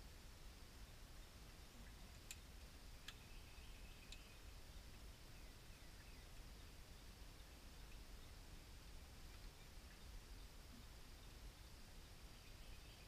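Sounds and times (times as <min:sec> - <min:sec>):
steady high hiss: 0:00.0 - 0:13.0
faint clicks: 0:02.1 - 0:03.3, 0:04.0 - 0:04.3.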